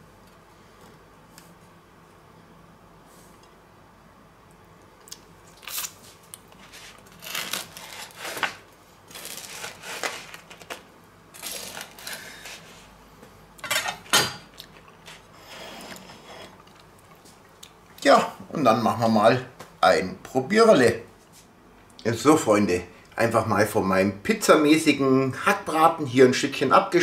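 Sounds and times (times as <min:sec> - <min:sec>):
knife sawing through crusty bread: 0:06.7 - 0:10.4.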